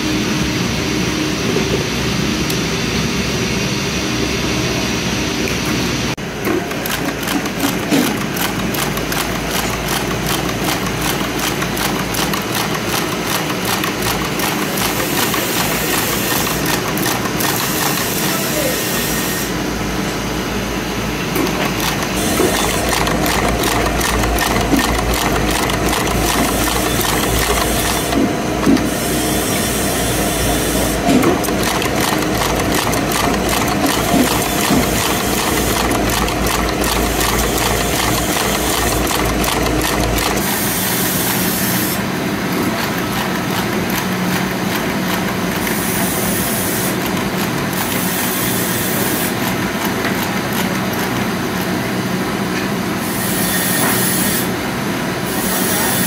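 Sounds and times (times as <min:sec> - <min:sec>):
tufting machine clatter: 0:06.2 - 0:18.7, 0:21.3 - 0:28.9, 0:30.2 - 0:48.1.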